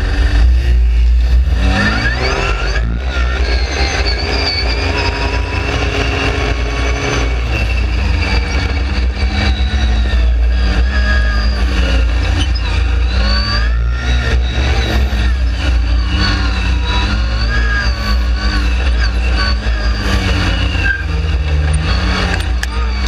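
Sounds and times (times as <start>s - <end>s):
dune buggy engine running: 0.0s - 23.0s.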